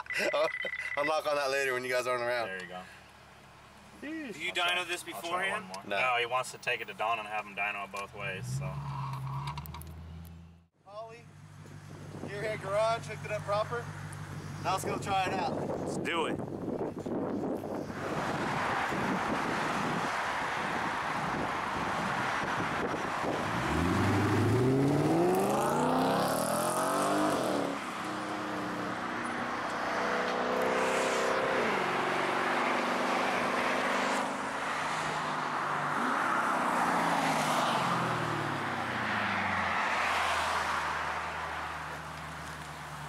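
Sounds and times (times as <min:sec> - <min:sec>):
car engine accelerating hard: 0:23.2 - 0:42.6.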